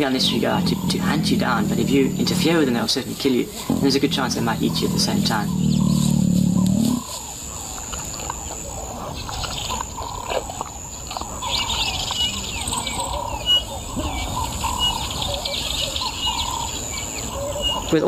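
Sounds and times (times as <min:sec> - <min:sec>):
man's voice: 0:00.0 - 0:05.6
birds chirping: 0:00.0 - 0:18.0.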